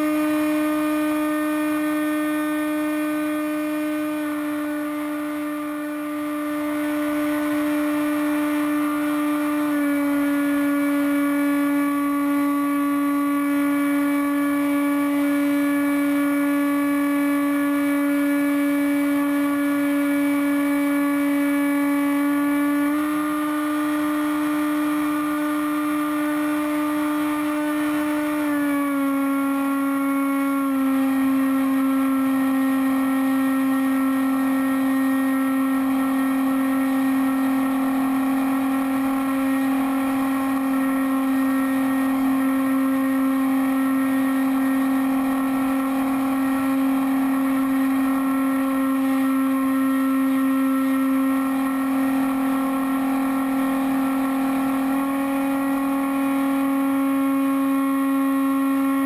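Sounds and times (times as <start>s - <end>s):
model plane motor whine: 0.0s - 59.0s.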